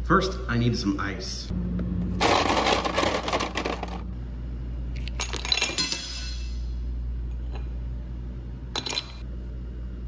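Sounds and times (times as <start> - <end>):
ice cubes clinking: 2.2 - 4.0.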